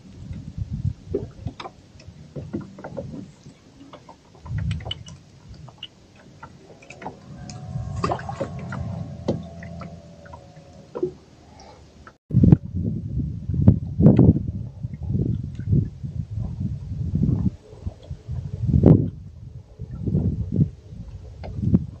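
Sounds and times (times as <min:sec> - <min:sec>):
low rumbles: 0:00.0 - 0:22.0
steady droning tone: 0:06.0 - 0:15.3.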